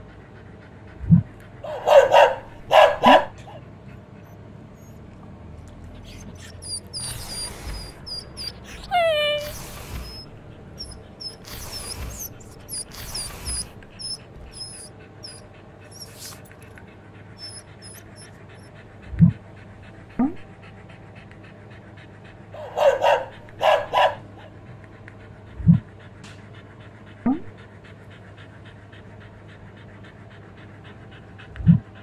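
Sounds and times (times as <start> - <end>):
dog sniffing and panting: 0.0 - 32.0
dog whining: 4.2 - 5.0, 5.9 - 16.8, 17.4 - 19.3.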